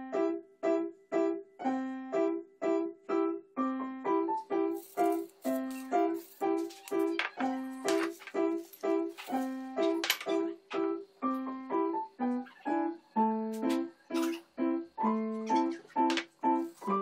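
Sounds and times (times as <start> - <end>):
electric piano music: 0.0 - 17.0
seasoning shaker rattling: 4.7 - 10.4.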